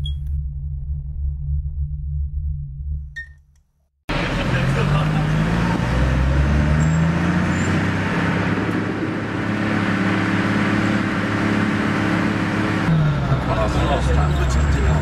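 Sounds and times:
car engine and road noise: 4.1 - 15.0.

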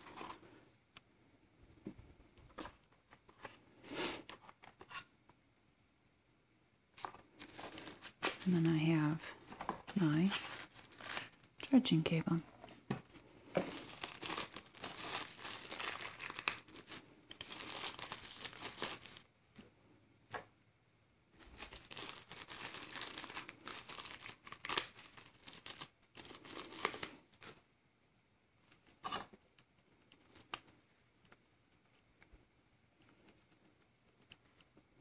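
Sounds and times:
packaging crinkling and tearing: 7.3 - 11.7, 13.6 - 19.3, 21.4 - 27.6, 29.6 - 30.7.

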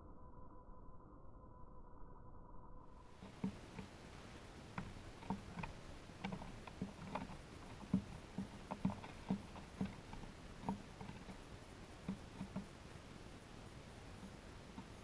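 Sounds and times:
bird pecking on wooden table: 12.0 - 12.7.

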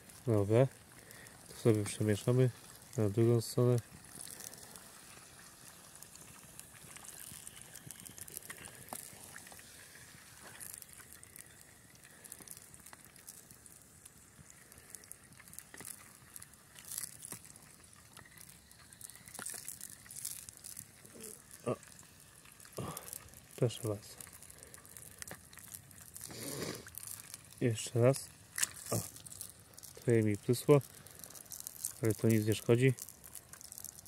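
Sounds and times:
campfire crackling and popping: 0.0 - 34.0
chicken frying hiss: 0.0 - 34.0.

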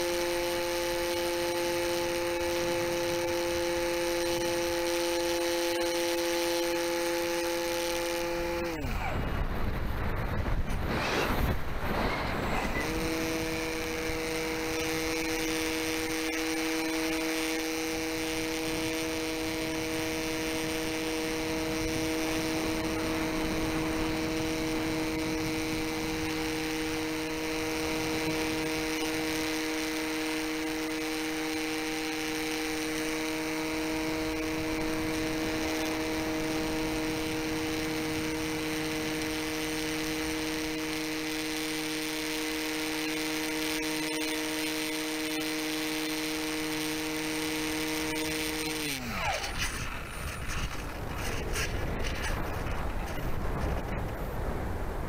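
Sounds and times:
propeller motor humming: 0.0 - 55.0
rushing wind: 8.6 - 15.4, 49.0 - 55.0.

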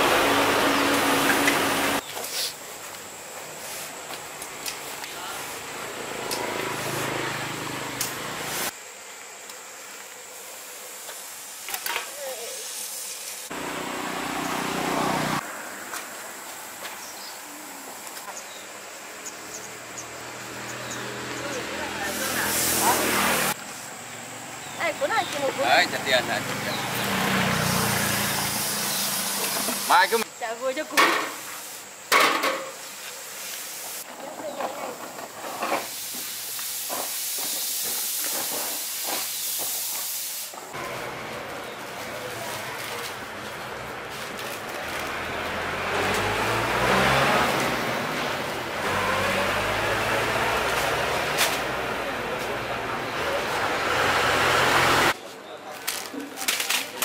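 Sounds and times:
high-pitched hiss: 1.9 - 6.3, 7.9 - 13.6, 21.9 - 26.8, 27.5 - 34.1, 35.6 - 41.0.

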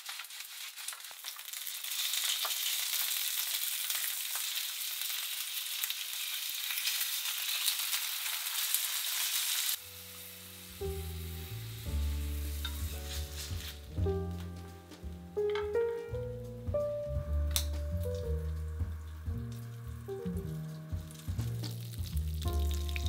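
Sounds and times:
fish sizzling in a frying pan: 0.0 - 14.0, 20.4 - 23.0
calm instrumental music: 9.8 - 23.0.

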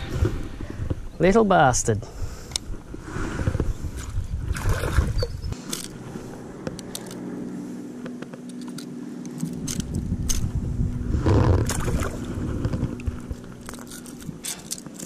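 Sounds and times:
rumbling splashes: 11.2 - 13.4.

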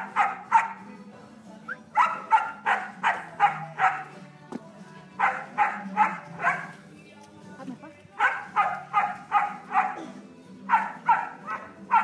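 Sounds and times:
dog barking: 0.0 - 0.9, 2.0 - 4.2, 5.2 - 6.8, 8.2 - 12.0.

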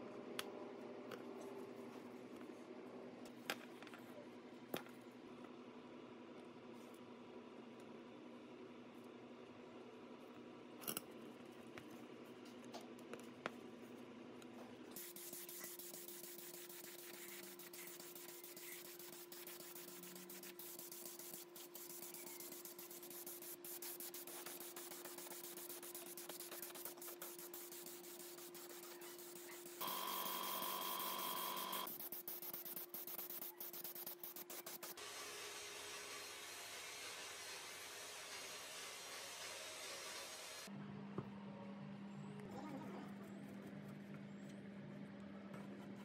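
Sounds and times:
spray gun hissing: 15.0 - 34.9.

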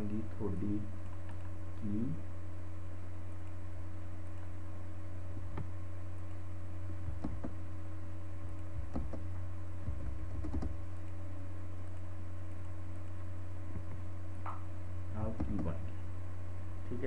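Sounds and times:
low electrical hum: 0.0 - 17.0
mouse and keyboard clicks: 10.0 - 11.2, 15.4 - 15.8.

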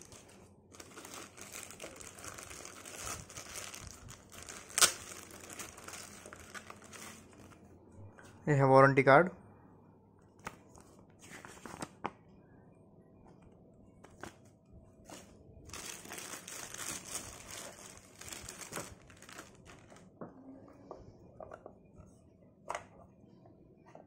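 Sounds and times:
plastic bag crinkling: 0.0 - 7.6, 15.7 - 20.2.

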